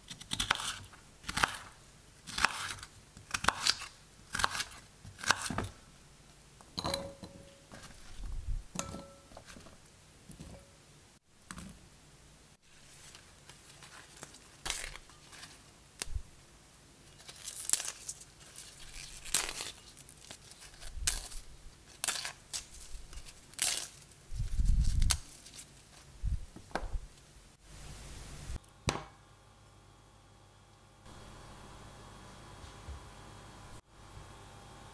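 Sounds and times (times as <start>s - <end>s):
knife chopping on wooden board: 2.3s - 5.7s
leaves tearing and crinkling: 12.7s - 16.2s, 17.1s - 26.1s.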